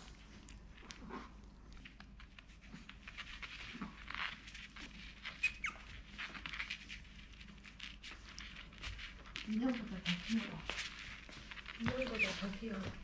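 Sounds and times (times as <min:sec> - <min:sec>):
puppies scuffling on a mat: 0:00.0 - 0:13.0
puppy squeak: 0:05.2 - 0:06.4, 0:11.8 - 0:12.6.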